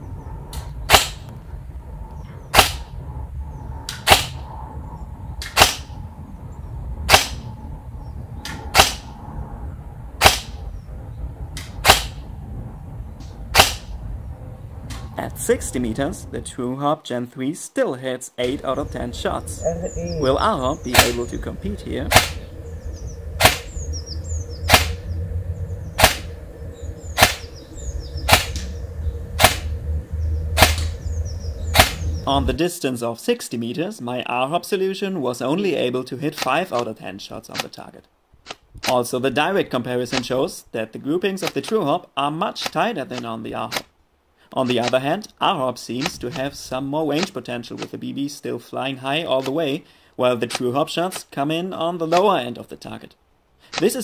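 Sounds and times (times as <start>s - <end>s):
airsoft rifle shots: 0.9s - 1.3s, 2.5s - 2.9s, 3.9s - 4.4s, 5.4s - 6.0s, 7.1s - 7.4s, 8.5s - 9.1s, 10.2s - 10.6s, 11.7s - 12.2s, 13.5s - 13.9s, 20.9s - 21.3s, 22.1s - 22.4s, 23.4s - 23.7s, 24.7s - 25.0s, 26.0s - 26.3s, 27.2s - 27.5s, 28.3s - 28.6s, 29.4s - 29.7s, 30.6s - 30.9s, 31.8s - 32.1s.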